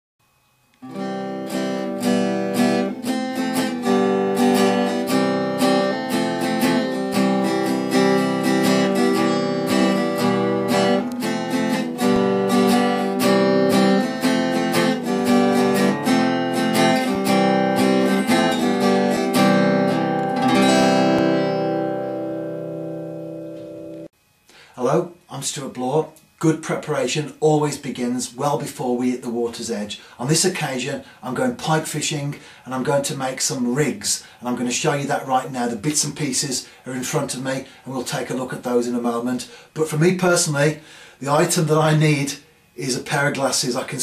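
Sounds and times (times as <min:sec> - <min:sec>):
acoustic guitar strumming: 0:00.8 - 0:24.7.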